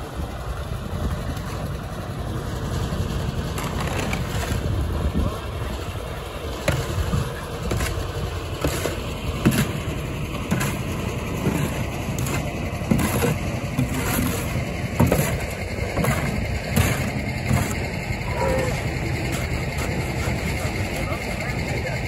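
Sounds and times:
steady low rumble: 0.0 - 22.0
shovel scraping wet concrete: 3.6 - 4.8, 6.6 - 21.2
concrete slapping into form: 8.6 - 9.8, 10.4 - 17.8.

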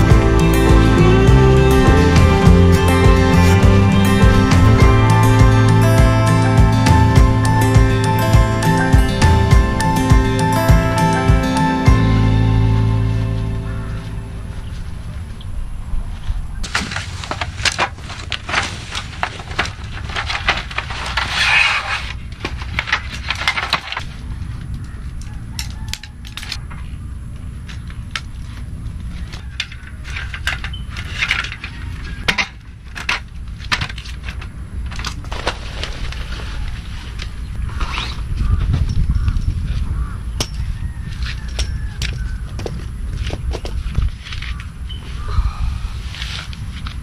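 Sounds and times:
metal camp table clattering: 16.6 - 24.1.

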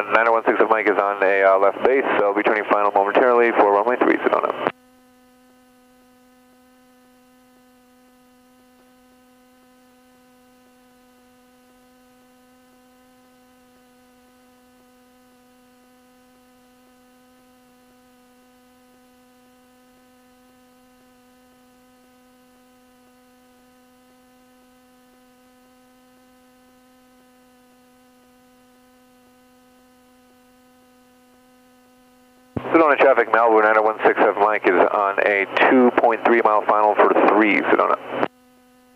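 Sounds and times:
faint electrical hum: 0.0 - 38.9.

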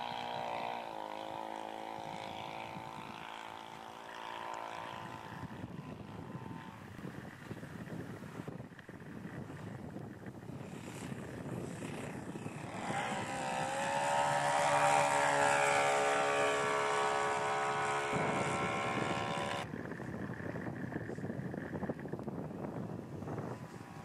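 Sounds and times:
model aircraft engine droning: 0.0 - 24.0.

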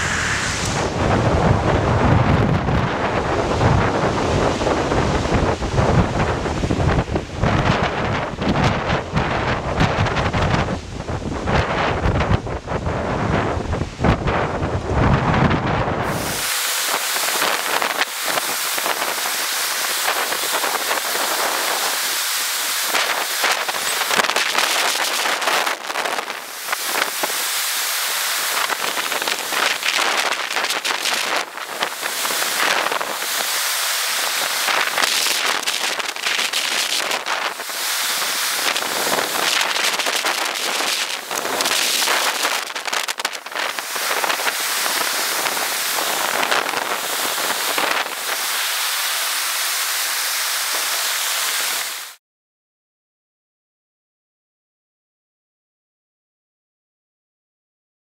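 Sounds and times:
ocean surf washing onto beach: 0.0 - 52.2.

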